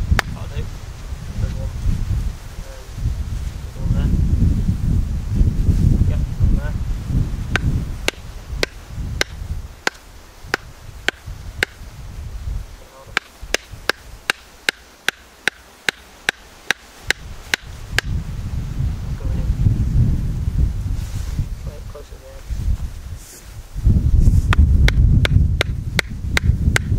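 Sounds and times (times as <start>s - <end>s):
wooden mallet knocking on splitting tool: 7.5s - 11.8s, 13.2s - 18.1s, 24.5s - 26.9s.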